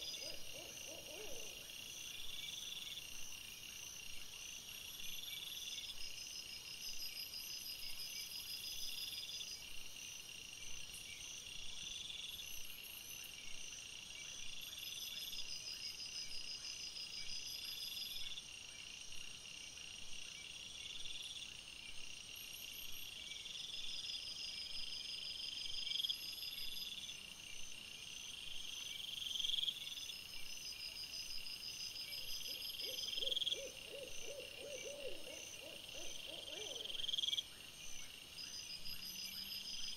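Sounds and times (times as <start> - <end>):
insect chirping phrases: 0.0 - 3.1, 25.0 - 39.9
insects trilling: 28.8 - 39.9.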